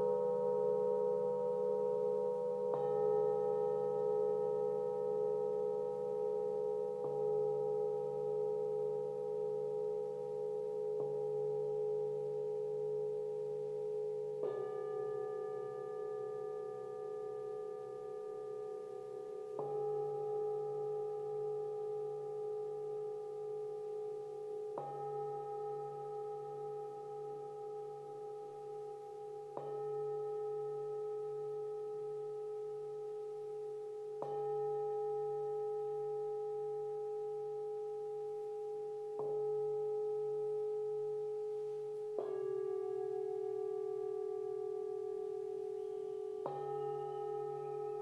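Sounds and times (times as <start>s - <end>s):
singing bowl ringing tone: 0.0s - 48.0s.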